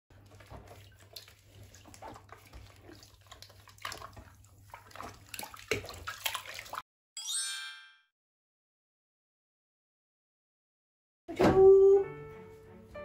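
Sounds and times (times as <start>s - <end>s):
water splashing in plastic tub: 0.1s - 6.8s.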